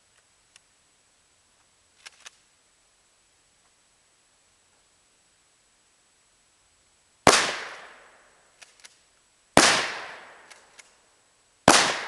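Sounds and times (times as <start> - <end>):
shotgun shots echoing: 7.3 - 8.2, 9.6 - 10.7, 11.7 - 12.0
faint clicks: 10.4 - 11.0.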